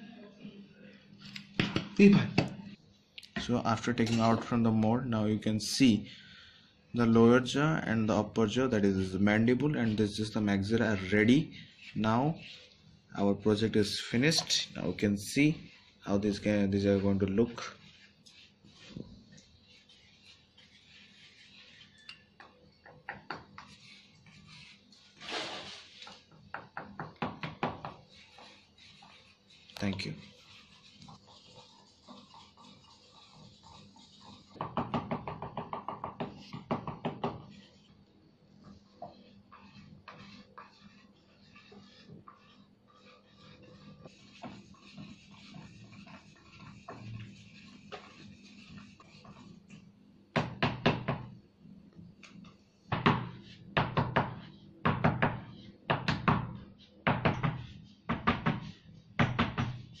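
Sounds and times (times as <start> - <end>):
rapid sharp knocks: 34.6 - 37.4.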